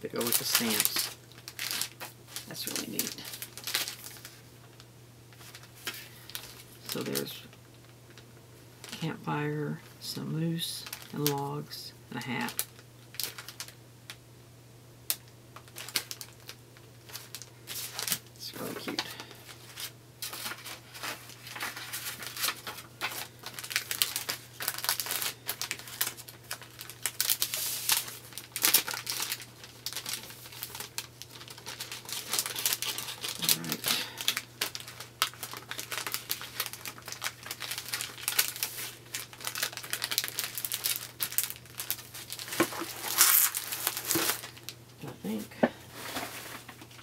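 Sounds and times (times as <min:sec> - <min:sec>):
plastic packaging crinkling: 0:00.1 - 0:09.1, 0:10.8 - 0:14.2, 0:15.1 - 0:47.0
paper pads rustling: 0:00.2 - 0:04.4, 0:15.6 - 0:44.7, 0:45.3 - 0:47.0.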